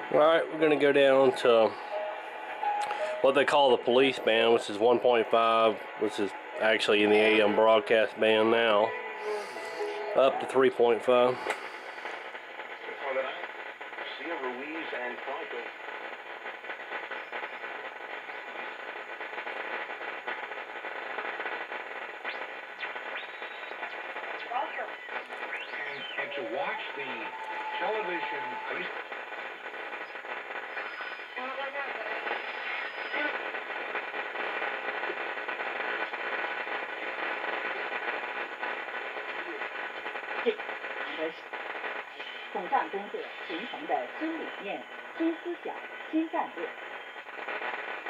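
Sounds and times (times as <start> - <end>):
radio static hiss and crackle: 0.0 - 48.0
radio whistle sweeping up: 6.3 - 10.7, 22.3 - 33.4.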